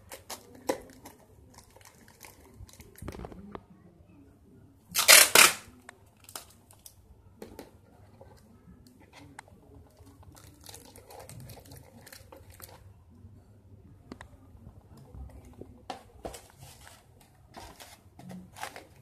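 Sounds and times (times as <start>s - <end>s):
paper crinkling: 0.0s - 3.5s, 9.9s - 12.8s, 16.2s - 19.0s
tape ripping off roll: 5.0s - 5.7s.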